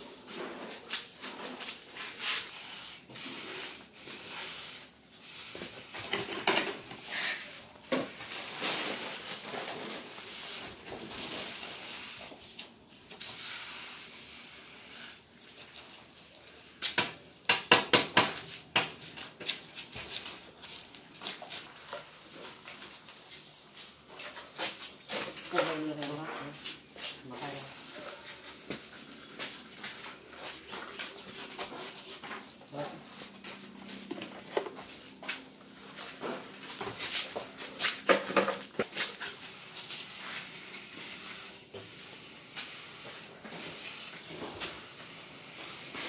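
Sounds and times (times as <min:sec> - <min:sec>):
cement scraping and sloshing: 0:00.2 - 0:12.4.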